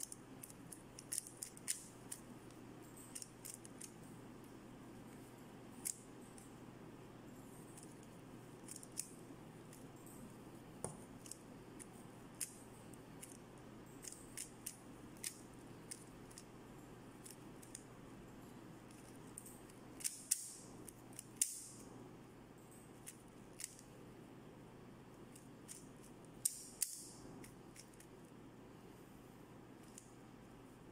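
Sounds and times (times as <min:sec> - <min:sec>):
plastic puzzle cube clicking: 0:00.0 - 0:02.3, 0:03.1 - 0:04.0, 0:05.8 - 0:06.4, 0:07.8 - 0:09.1, 0:11.2 - 0:12.6, 0:13.2 - 0:13.4, 0:14.0 - 0:16.5, 0:17.2 - 0:17.9, 0:18.9 - 0:21.8, 0:23.0 - 0:23.8, 0:25.3 - 0:28.1
faint background noise: 0:00.0 - 0:30.9.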